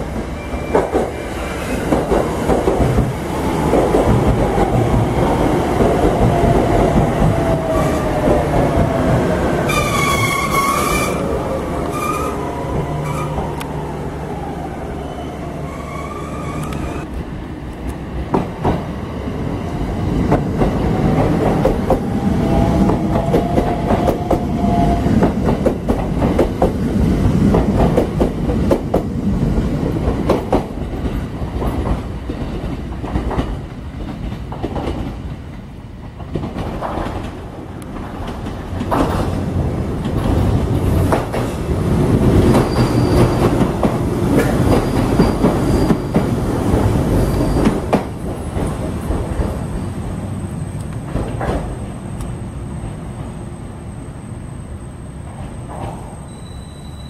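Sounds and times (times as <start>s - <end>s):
train rumbling over rail joints: 0.0s - 53.4s
thin train squeal: 0.3s - 1.2s, 9.7s - 11.3s, 11.9s - 12.4s, 15.0s - 17.0s, 42.5s - 43.6s, 44.7s - 46.2s, 47.1s - 48.0s, 55.9s - 57.0s.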